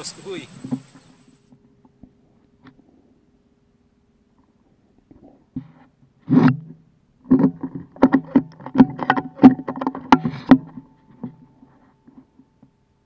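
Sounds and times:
sharp clicks and knocks: 4.4s - 12.7s.

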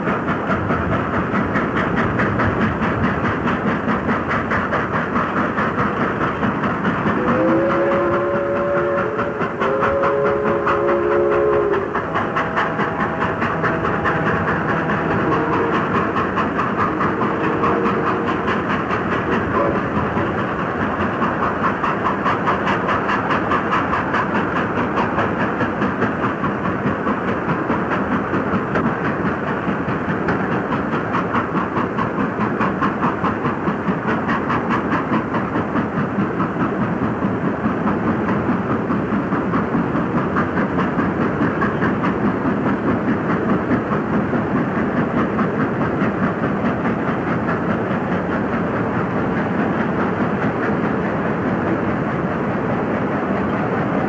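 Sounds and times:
steam train running past: 0.0s - 54.0s
steam train chime whistle: 7.2s - 18.5s, 19.5s - 19.9s.

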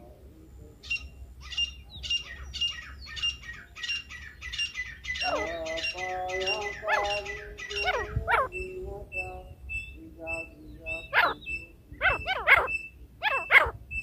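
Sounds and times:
bird calling sharp high notes: 9.8s - 14.0s.

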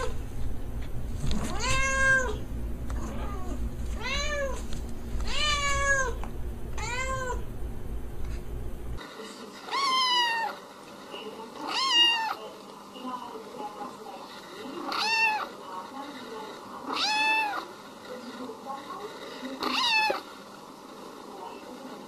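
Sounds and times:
low steady hum: 0.0s - 9.0s
cat meowing: 1.5s - 2.4s, 3.0s - 4.6s, 5.2s - 6.2s, 6.8s - 7.4s, 9.7s - 10.6s, 11.7s - 12.4s, 14.9s - 15.5s, 16.9s - 17.6s, 19.6s - 20.2s
kitten meowing: 1.5s - 2.4s, 3.0s - 4.6s, 5.2s - 6.2s, 6.8s - 7.4s.

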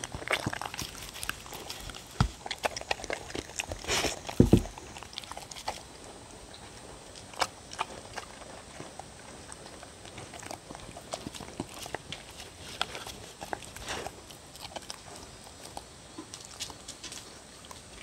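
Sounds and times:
dogs chewing and lapping: 0.0s - 18.0s
dull thumps: 4.3s - 4.8s.

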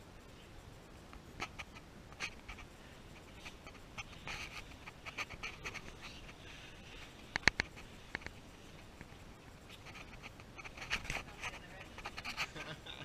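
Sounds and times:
rustling and scraping against rock: 1.4s - 12.8s
sharp clicks: 7.3s - 8.4s.

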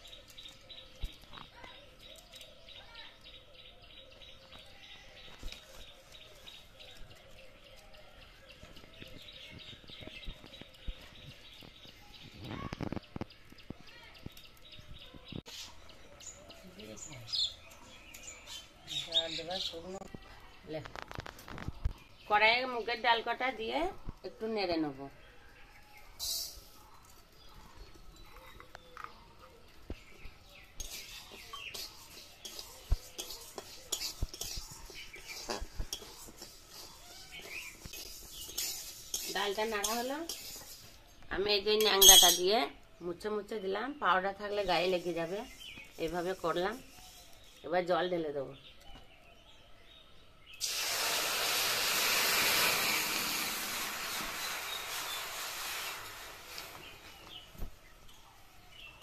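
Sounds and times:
birds chirping: 0.0s - 50.7s, 52.7s - 55.6s, 56.3s - 59.0s
sticks rustling and clattering: 30.8s - 41.1s
metal spatula scraping dry grains: 30.8s - 42.4s, 44.6s - 47.6s, 51.6s - 57.4s.

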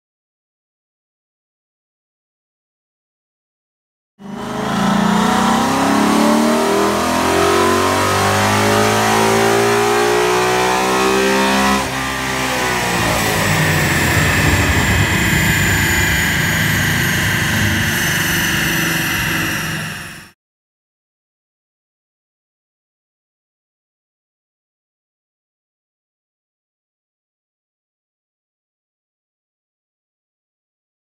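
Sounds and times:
car engine revving: 4.2s - 20.3s
drivetrain whine: 4.2s - 20.4s.

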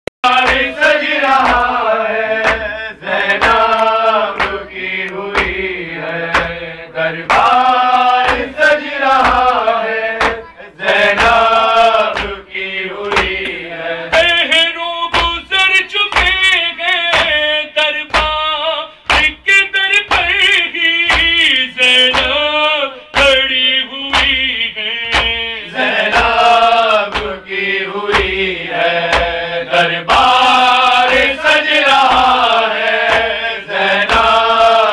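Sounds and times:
man singing a chant: 0.2s - 34.9s
steady beat of sharp thumps: 0.4s - 1.8s, 2.4s - 4.7s, 5.3s - 9.6s, 10.2s - 10.5s, 11.1s - 14.4s, 15.1s - 15.5s, 16.1s - 16.5s, 17.1s - 17.4s, 18.1s - 22.4s, 24.1s - 27.4s, 28.1s - 29.5s, 33.0s - 33.4s, 34.0s - 34.7s.

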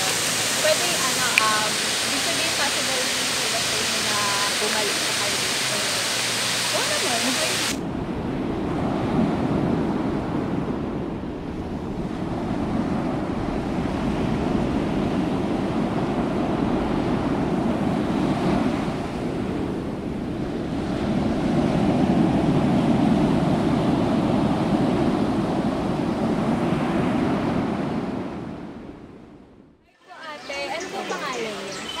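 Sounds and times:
waterfall rushing: 0.0s - 7.8s.

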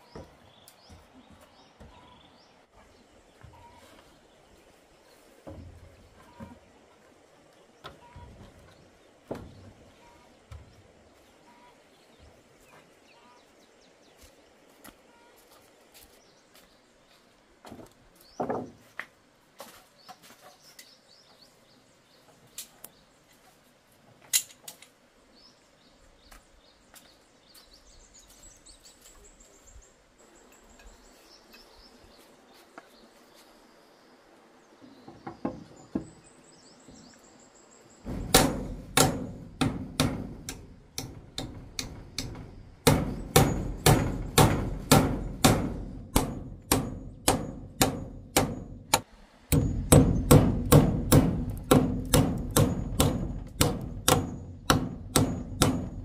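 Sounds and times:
birds chirping: 0.0s - 17.4s, 25.2s - 56.0s
hammer striking: 38.1s - 56.0s.

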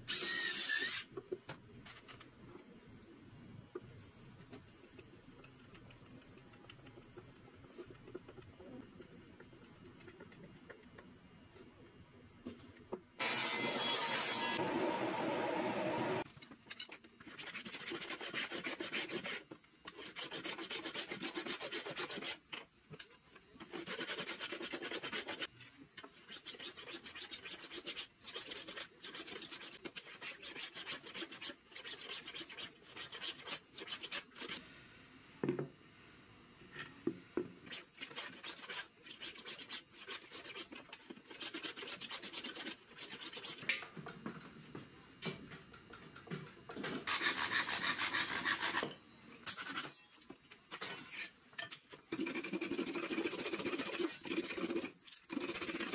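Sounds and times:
tool scraping wood: 46.8s - 50.0s.

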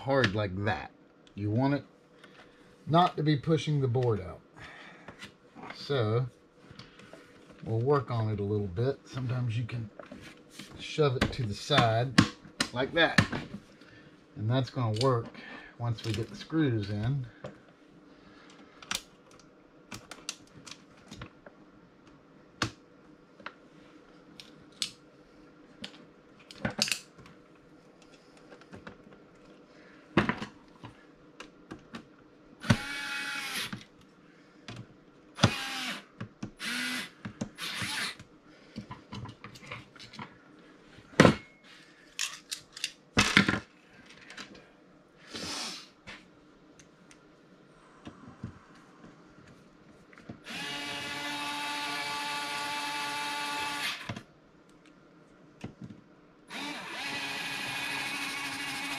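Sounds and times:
electric screwdriver whirring: 32.6s - 33.8s, 35.4s - 38.2s, 50.4s - 54.1s, 56.5s - 58.9s.

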